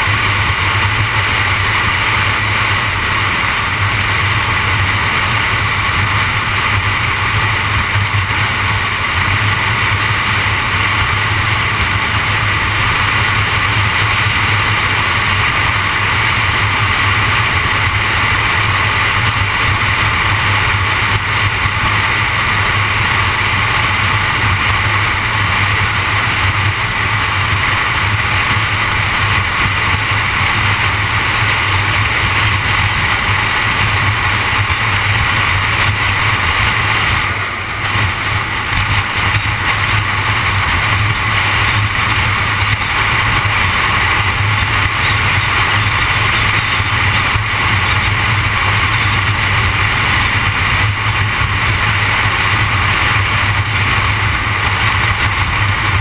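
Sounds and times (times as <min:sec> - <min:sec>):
car road noise: 0:00.0 - 0:56.0.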